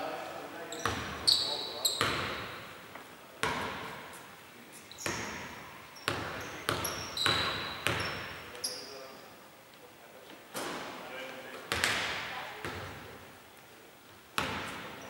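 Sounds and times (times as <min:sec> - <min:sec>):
sneaker squeaks on floor: 0:00.7 - 0:02.6, 0:04.8 - 0:09.2
basketball bouncing on hardwood: 0:06.1 - 0:08.2, 0:11.7 - 0:13.0, 0:14.4 - 0:14.9.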